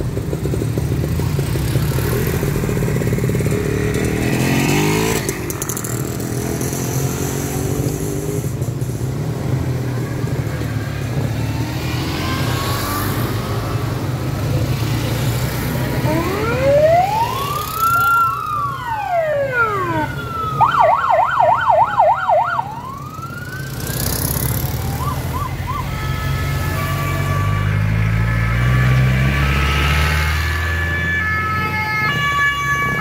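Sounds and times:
siren chirps: 15.8 - 33.0
siren wailing and yelping: 15.9 - 26.1
small car engines running: 22.6 - 25.4.

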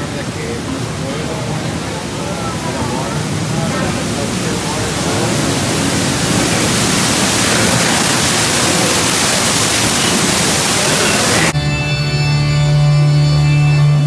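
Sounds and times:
waterfall rushing: 0.0 - 11.6
music with long held notes: 7.2 - 14.0.

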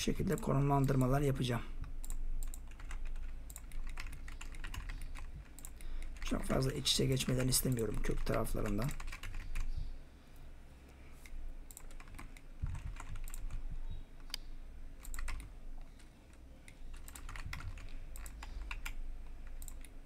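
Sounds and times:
low steady hum: 0.0 - 20.0
keyboard and mouse clicking: 1.8 - 9.8, 11.2 - 13.6, 14.2 - 20.0.

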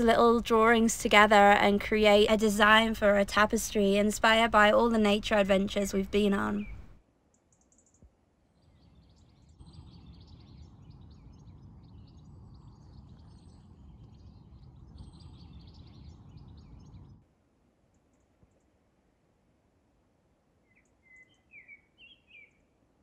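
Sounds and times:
birds chirping: 0.0 - 7.0
low steady rumble: 0.0 - 7.0.

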